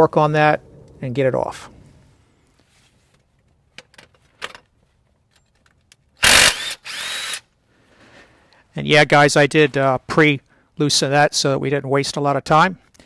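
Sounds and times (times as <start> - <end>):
impact wrench whine: 6.2 - 7.5.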